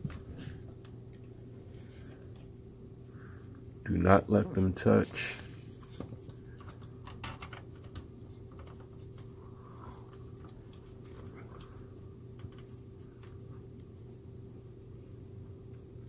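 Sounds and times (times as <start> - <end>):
steady low hum: 0.0 - 16.0
fingers handling wires clicking: 6.1 - 9.4.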